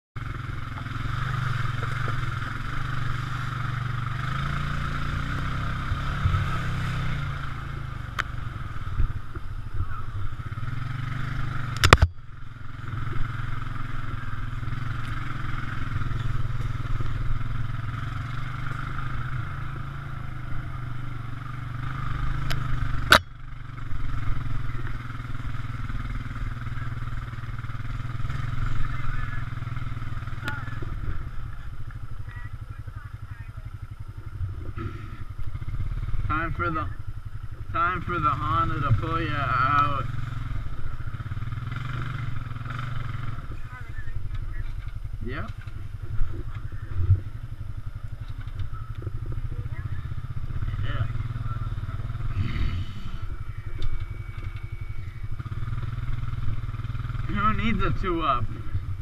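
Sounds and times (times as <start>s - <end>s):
atv engine running: 0.2s - 59.0s
machine rattling over rough ground: 12.8s - 20.0s.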